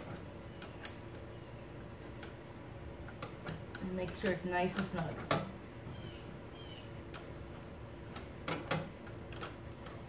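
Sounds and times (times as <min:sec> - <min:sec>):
wrenches clicking on metal: 0:03.0 - 0:05.6, 0:07.1 - 0:10.0.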